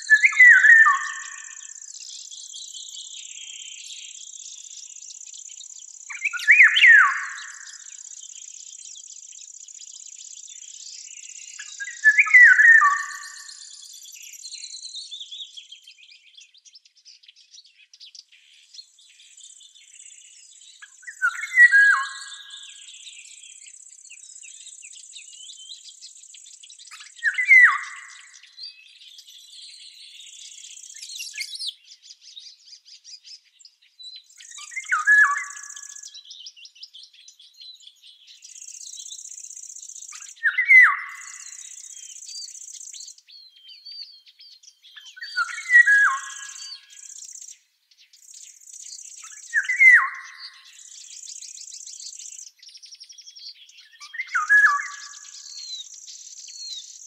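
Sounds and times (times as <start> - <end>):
songbird singing falling phrase: 0.0 - 4.2, 5.6 - 8.2, 11.4 - 14.3, 27.1 - 28.6, 34.4 - 39.3, 40.1 - 47.5, 49.3 - 56.1
birds twittering: 0.0 - 57.0.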